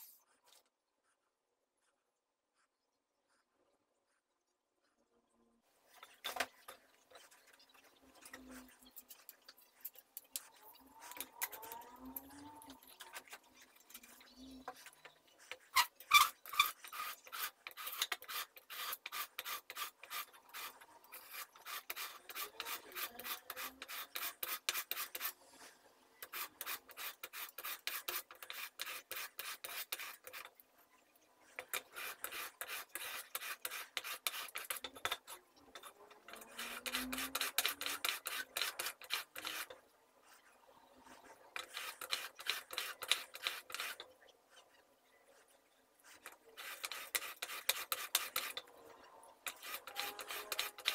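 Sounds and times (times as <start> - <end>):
chisel scraping on sharpening stone: 15.7 - 25.3, 31.6 - 39.7, 41.6 - 44.0, 46.6 - 48.6, 49.5 - 50.9.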